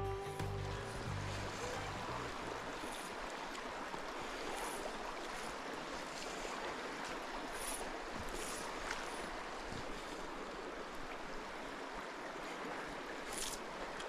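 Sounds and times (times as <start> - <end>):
background music: 0.0 - 2.7
stream rippling over stones: 0.4 - 14.0.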